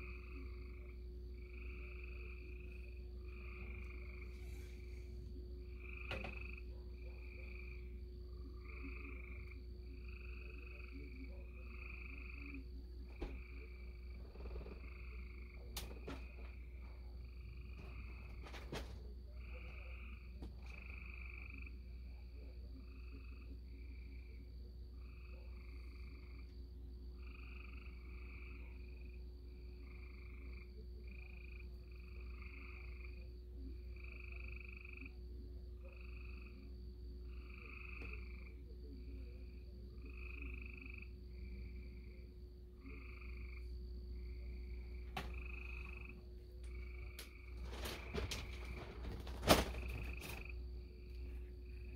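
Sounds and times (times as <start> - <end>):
low hum: 0.0 - 21.7
frogs croaking: 0.0 - 51.9.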